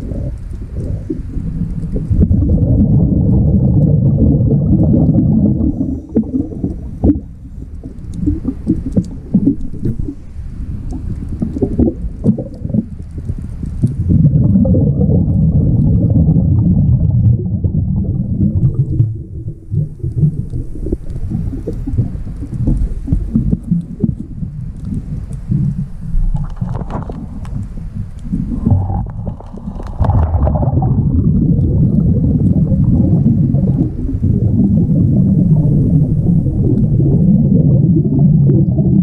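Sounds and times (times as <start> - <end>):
clicks and crackles: 0.0 - 34.3, 35.2 - 39.0
diver's exhaled bubbles rumbling: 0.0 - 39.0.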